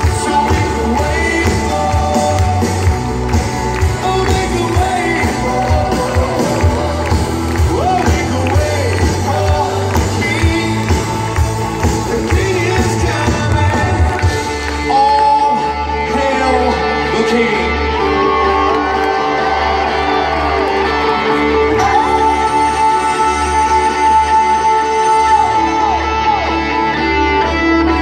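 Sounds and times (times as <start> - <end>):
drums beating: 0.0 - 15.2
bass guitar: 0.0 - 28.0
electric guitar: 0.0 - 28.0
keyboards: 0.0 - 28.0
person singing: 0.0 - 28.0.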